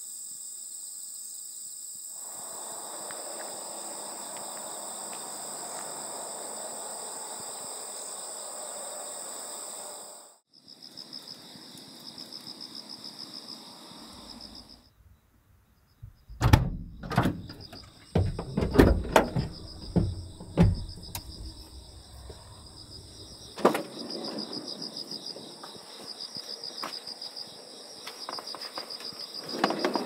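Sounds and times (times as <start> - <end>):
crickets chirping: 0.0 - 30.0
van doors clunking open: 16.0 - 24.3.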